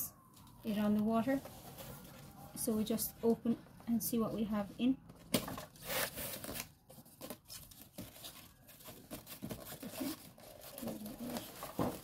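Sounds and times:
cardboard rustles and knocks: 7.2s - 12.0s.

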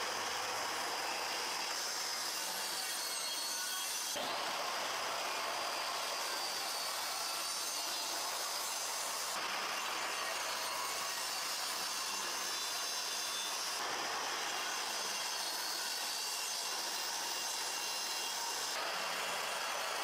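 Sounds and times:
mitre saw cutting plywood: 0.0s - 20.0s.

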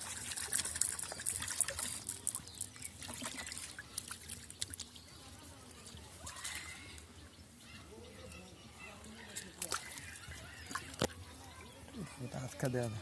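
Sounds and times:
fish splashing in net: 0.0s - 5.0s, 6.1s - 7.0s
water trickling off a net: 0.0s - 7.6s, 9.0s - 11.7s.

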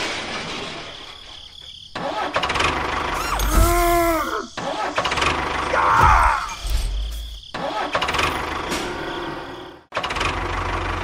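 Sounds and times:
tractor engine rumble: 0.0s - 5.8s, 10.0s - 11.0s.

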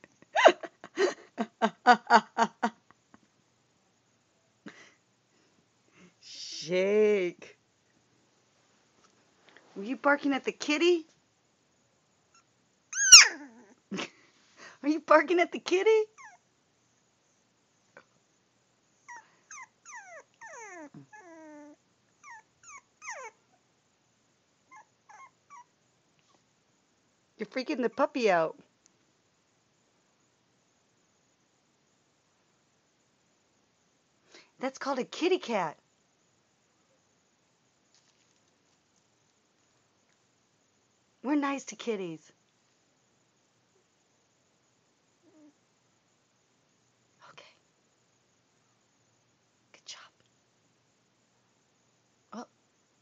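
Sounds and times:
puppy whimpering: 12.4s - 13.8s, 16.1s - 16.4s, 19.1s - 23.4s, 24.7s - 25.7s
puppy barking short high yaps: 13.0s - 13.4s.

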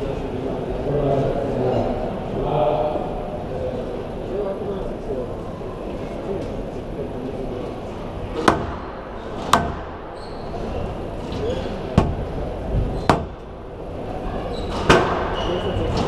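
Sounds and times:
murmur of spectators: 0.0s - 16.0s
squash ball cracks: 8.4s - 10.1s.

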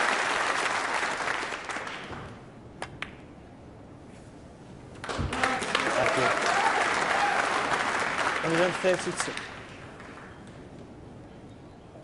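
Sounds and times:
crowd applause: 0.0s - 2.1s, 5.0s - 10.3s.

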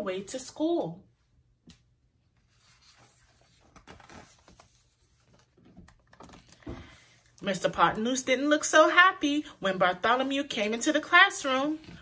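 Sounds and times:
paper page turning: 2.4s - 6.6s.

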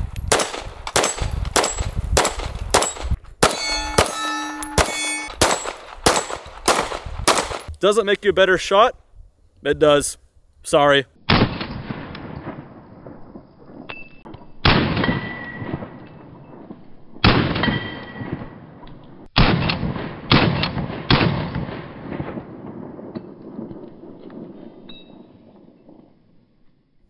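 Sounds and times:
pistol shots with echo: 0.3s - 7.7s, 13.7s - 16.6s, 19.4s - 23.4s.

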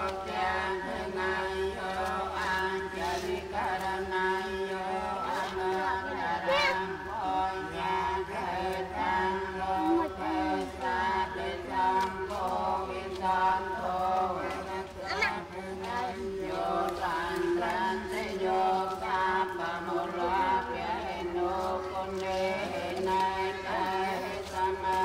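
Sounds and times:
voices chanting together: 0.0s - 25.0s.

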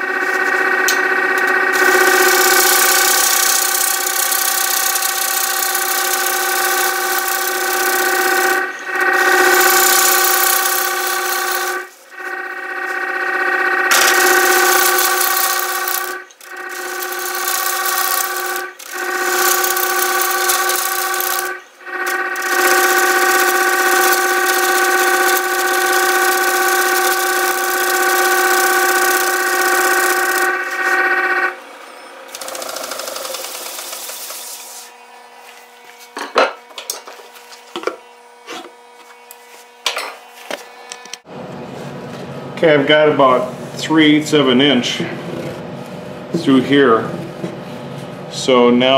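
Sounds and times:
lathe tool rasping on wood: 14.2s - 31.2s.

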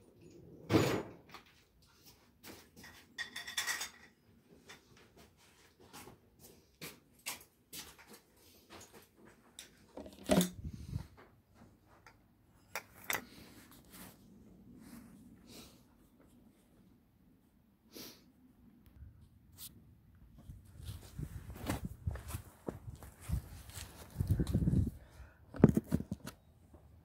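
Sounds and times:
camera handling clicks and rustles: 9.6s - 10.7s, 25.5s - 26.4s.

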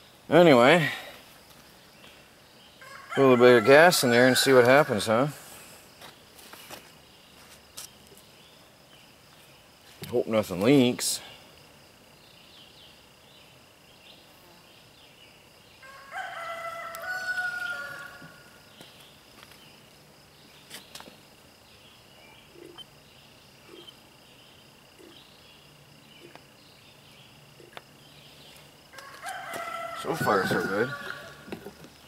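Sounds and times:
rooster crowing: 2.8s - 5.1s, 15.8s - 18.6s, 28.9s - 31.7s.

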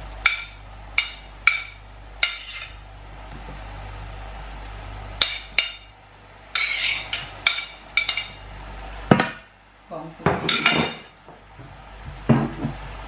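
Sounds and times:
metal spoon clinking on plate: 6.6s - 8.4s.

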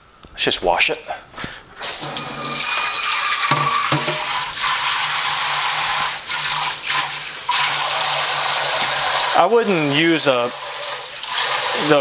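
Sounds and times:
faucet spray running into sink: 1.8s - 12.0s
light knocks of pan: 3.5s - 4.3s.

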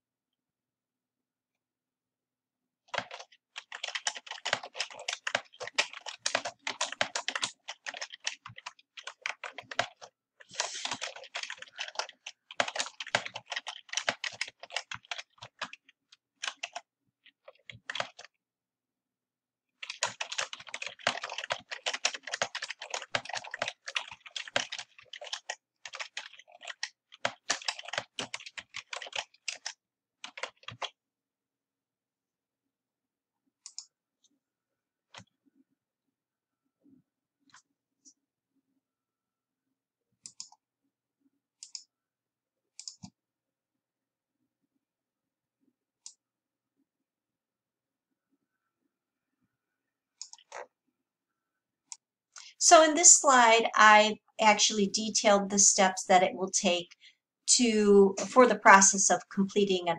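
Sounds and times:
typing on a keyboard: 2.9s - 18.4s, 19.8s - 31.0s, 50.2s - 50.7s.

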